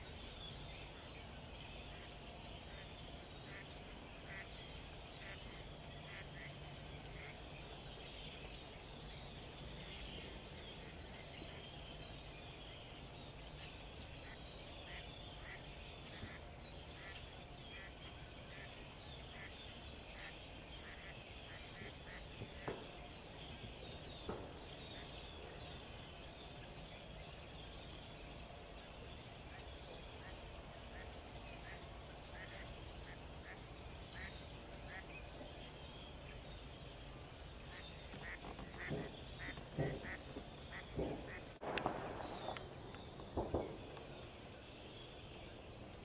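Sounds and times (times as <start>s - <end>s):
ducks calling: 1.9s - 7.4s, 14.1s - 26.0s, 29.5s - 35.5s, 37.5s - 44.6s
distant shotgun shots: 40.9s - 44.2s.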